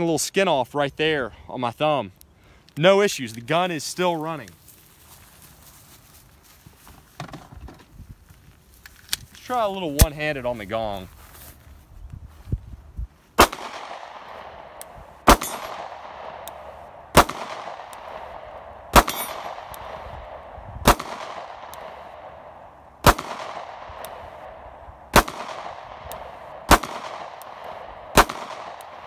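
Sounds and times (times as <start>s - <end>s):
pistol shots: 13.4s - 29.0s.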